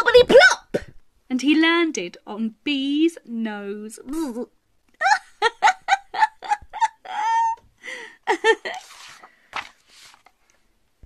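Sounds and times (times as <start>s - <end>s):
woman giggling: 4.1s - 9.1s.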